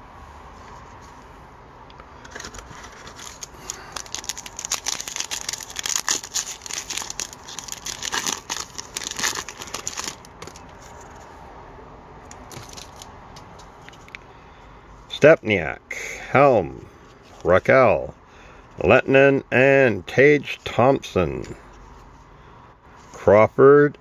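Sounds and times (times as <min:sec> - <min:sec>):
foil pack crinkling: 0:02.2 - 0:11.2, 0:12.3 - 0:13.1.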